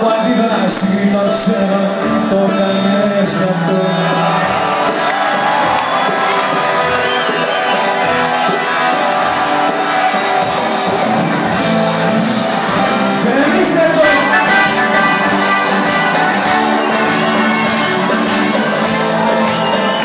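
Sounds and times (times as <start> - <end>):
audience shouting and singing along: 0.0 - 20.0
live pop band playing: 0.0 - 20.0
person singing: 13.2 - 16.4.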